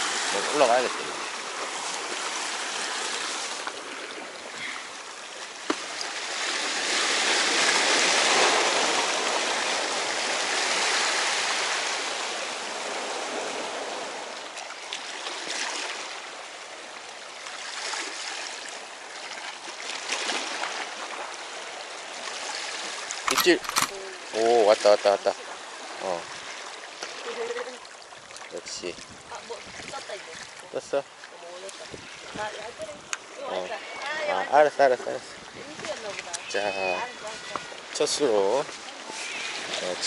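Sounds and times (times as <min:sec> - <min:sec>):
waves washing over rocks: 0:00.0 - 0:14.3.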